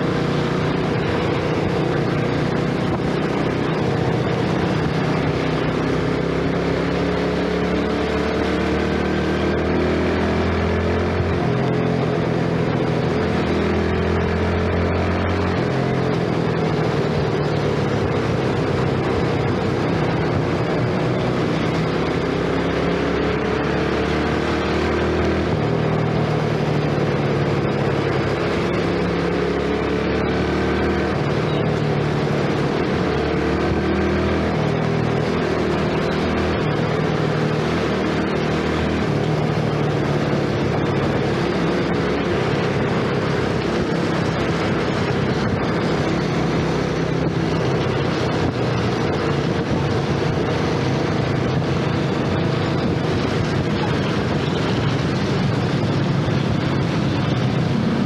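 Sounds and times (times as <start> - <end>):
scooter engine running: 25.3 - 58.0.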